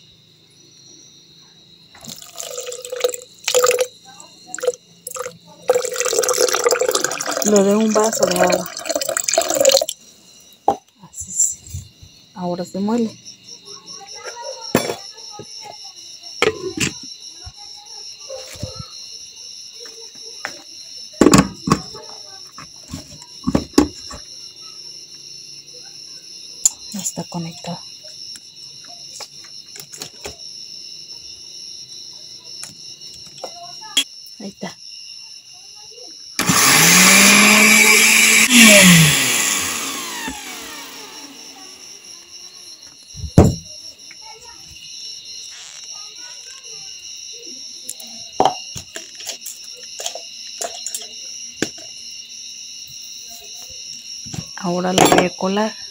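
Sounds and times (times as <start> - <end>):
crickets trilling: 0.0 - 55.9
blender motor running: 36.4 - 42.1.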